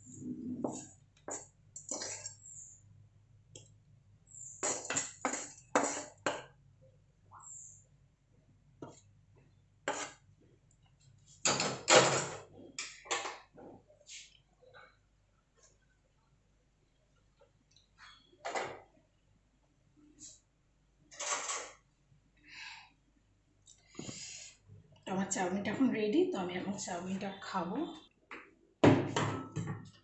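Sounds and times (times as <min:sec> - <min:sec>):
spatula scraping metal pan: 0:00.6 - 0:02.4, 0:04.4 - 0:06.2, 0:09.9 - 0:10.2.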